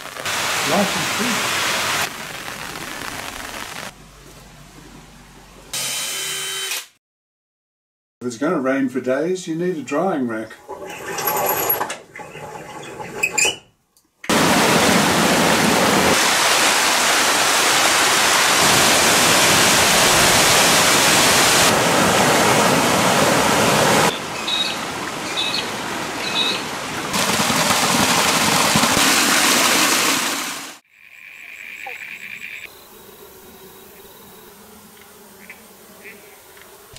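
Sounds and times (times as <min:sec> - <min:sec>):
water rushing: 0:00.0 - 0:03.9, 0:14.3 - 0:30.8.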